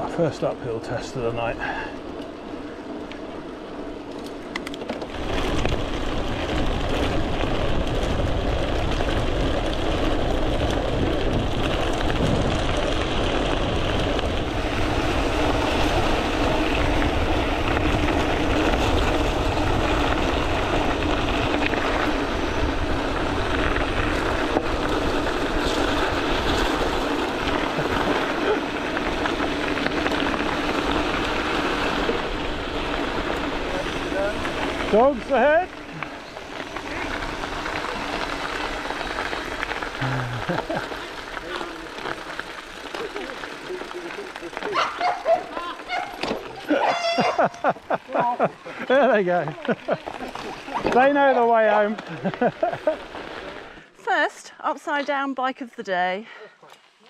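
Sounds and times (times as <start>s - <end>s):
bicycle tyres rolling on gravel: 0.0s - 57.0s
wind on microphone: 5.5s - 21.4s.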